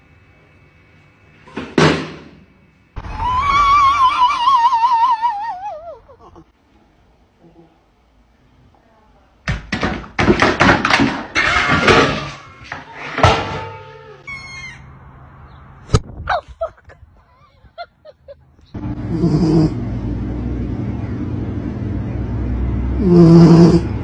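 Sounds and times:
sharp knocks and thuds: 9.5s - 11.3s
dog snoring: 19.1s - 19.8s, 23.0s - 24.0s.

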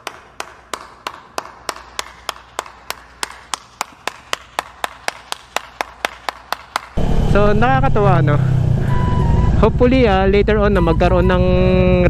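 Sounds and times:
person clapping hands: 0.0s - 7.0s.

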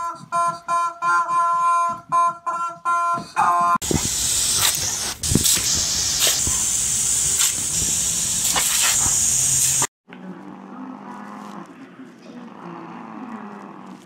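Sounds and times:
hose spray hissing: 3.8s - 9.9s
dog snapping at water: 8.5s - 9.2s
small dog growling: 10.2s - 14.0s.

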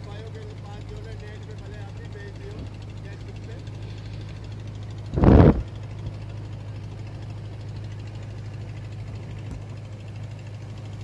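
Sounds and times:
boat engine droning: 0.0s - 11.0s
loud thump: 5.2s - 5.7s.

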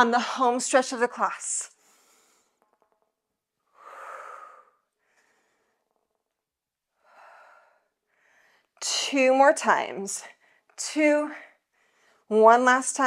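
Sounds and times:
woman breathing: 1.7s - 2.8s, 3.6s - 6.3s, 6.9s - 8.8s, 10.2s - 12.3s.

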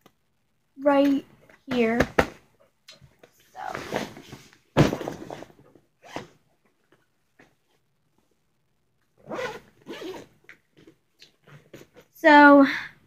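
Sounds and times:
zipper pulled open: 6.0s - 6.4s, 9.2s - 10.3s.

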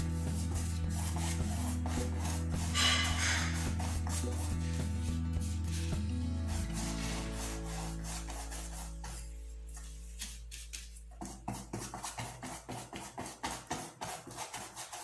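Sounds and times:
paintbrush scrubbing on canvas: 0.0s - 15.0s
soft background music: 0.0s - 15.0s.

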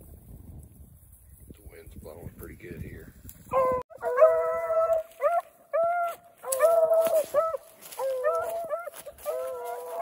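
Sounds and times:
dogs baying: 3.5s - 10.0s.

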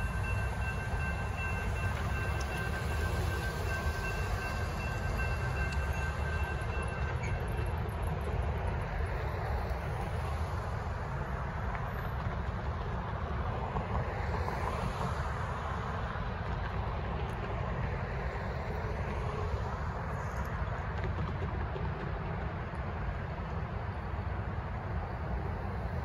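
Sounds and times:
cars driving over rail crossing: 0.0s - 9.5s.

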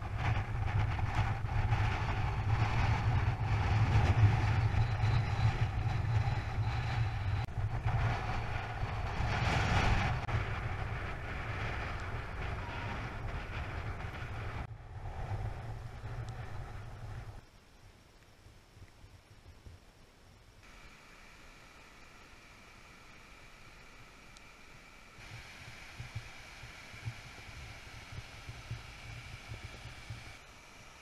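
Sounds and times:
wind buffeting microphone: 0.0s - 17.4s, 25.2s - 30.4s.

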